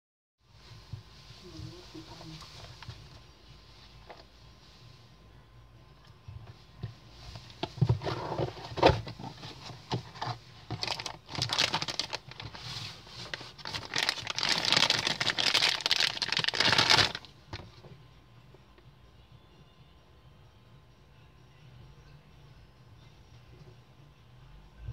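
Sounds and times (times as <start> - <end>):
plastic bag crinkling: 9.4 - 17.3.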